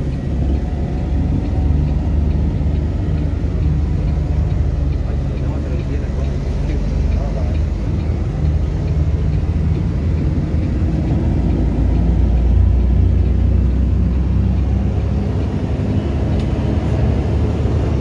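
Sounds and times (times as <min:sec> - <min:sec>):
road noise: 0:00.0 - 0:18.0
vehicle engine rumble: 0:00.0 - 0:18.0.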